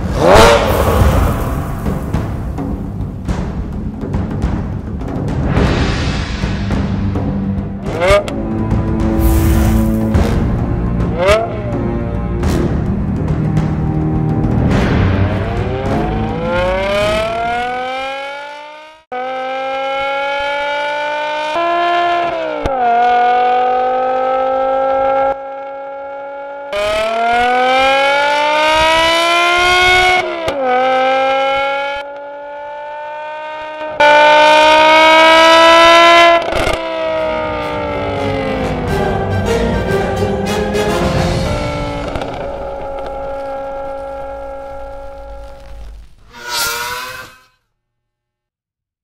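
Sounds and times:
car engine accelerating hard: 0:00.0 - 0:03.6, 0:13.8 - 0:47.3.

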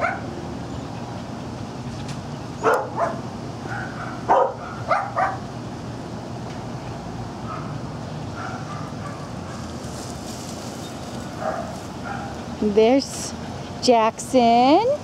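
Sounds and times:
dog barking: 0:00.0 - 0:00.3, 0:02.6 - 0:05.4, 0:07.5 - 0:07.8, 0:08.4 - 0:09.6, 0:11.4 - 0:12.4.

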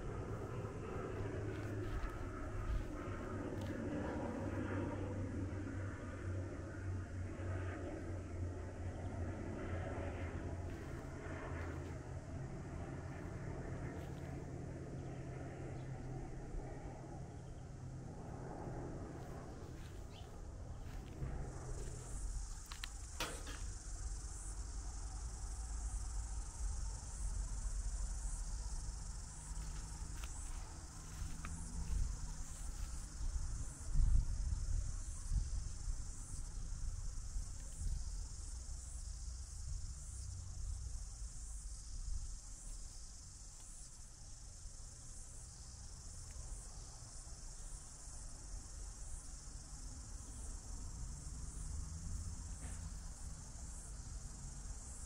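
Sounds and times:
insects chirring: 0:00.0 - 0:55.0
low rumble: 0:18.1 - 0:22.8.

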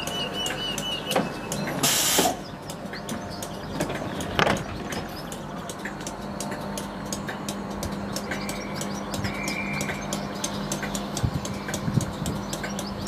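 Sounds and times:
train hum: 0:00.0 - 0:13.0
short loud hiss: 0:01.8 - 0:02.4.

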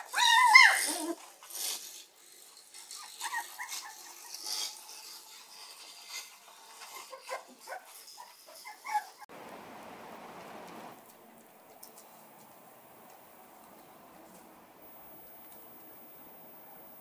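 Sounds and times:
puppies yipping and whimpering: 0:00.0 - 0:01.3, 0:02.8 - 0:05.0, 0:06.7 - 0:09.3
steady hiss: 0:09.3 - 0:17.0.

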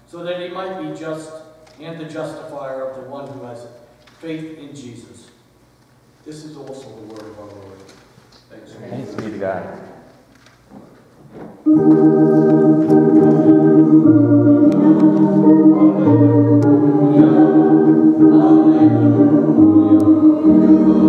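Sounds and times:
organ playing chords: 0:11.6 - 0:21.0.

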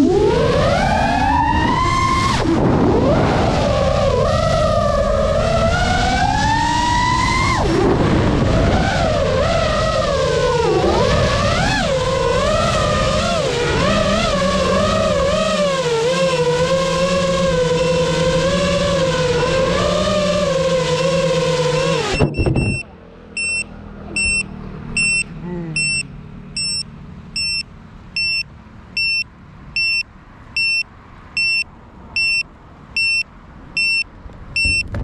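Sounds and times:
drone motors whining: 0:00.0 - 0:30.0
short high beeps: 0:22.2 - 0:34.9.

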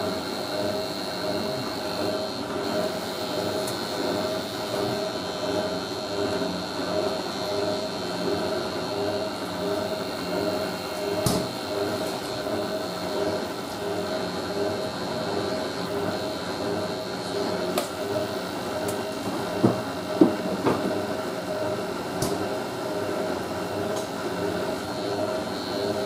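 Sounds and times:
washing machine motor hum and whine: 0:00.0 - 0:26.0
washing machine knocks: 0:19.3 - 0:21.1.

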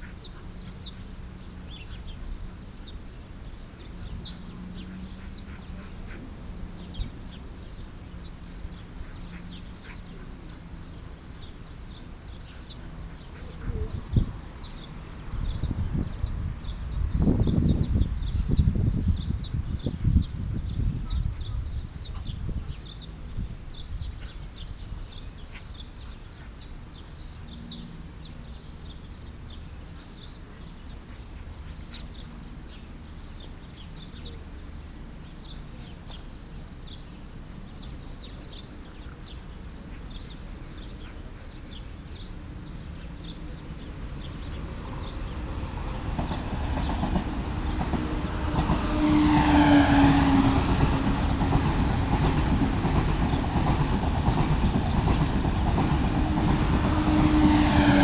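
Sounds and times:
low background noise: 0:00.0 - 0:49.8
birds chirping faintly: 0:00.0 - 0:58.0
train passing: 0:00.0 - 0:58.0.

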